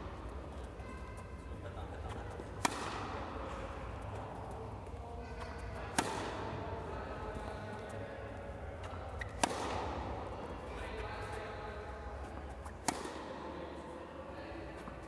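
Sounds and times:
tennis racket striking ball: 0:02.6 - 0:03.4, 0:05.8 - 0:06.6, 0:09.2 - 0:10.2, 0:12.8 - 0:13.4.

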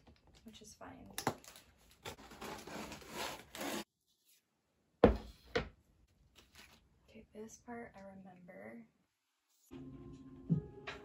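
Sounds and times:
box cutter slicing cardboard: 0:02.4 - 0:03.9.

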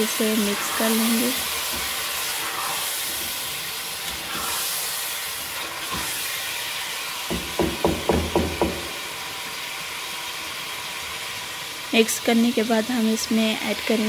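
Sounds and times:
chicken sizzling in pot: 0:00.0 - 0:14.0
sharp knocks: 0:07.3 - 0:08.9.

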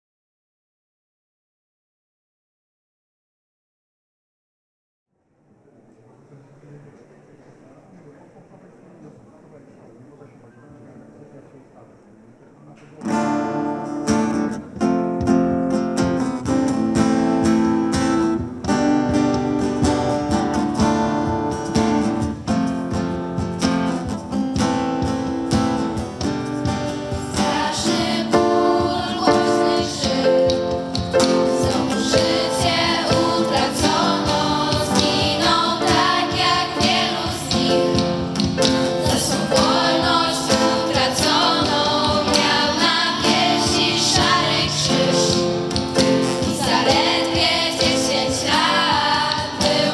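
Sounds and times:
acoustic guitar strumming: 0:13.0 - 0:49.9
girls singing together: 0:27.2 - 0:49.9.

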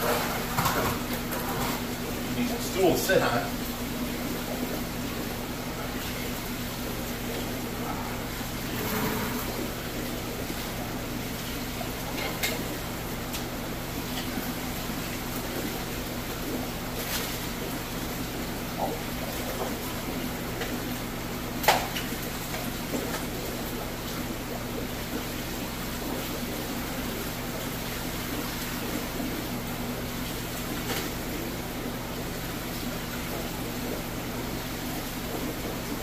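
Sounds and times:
aquarium pumps humming: 0:00.0 - 0:36.0
water noise: 0:00.0 - 0:36.0.

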